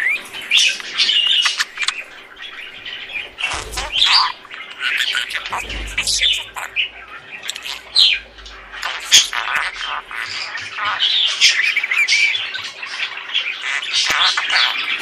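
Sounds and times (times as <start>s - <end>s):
budgerigars chattering: 0.0s - 15.0s
low rumble: 3.1s - 4.3s, 5.3s - 7.2s, 7.8s - 10.1s.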